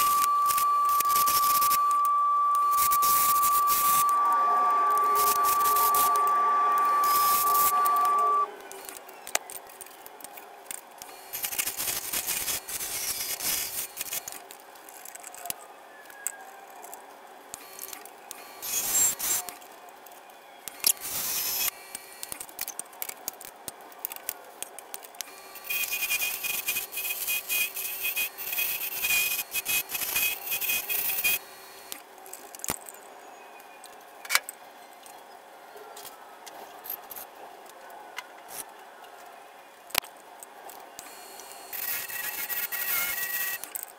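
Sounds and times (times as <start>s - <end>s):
loud steady whine: 0.0s - 9.0s
faint steady hum: 0.0s - 9.3s.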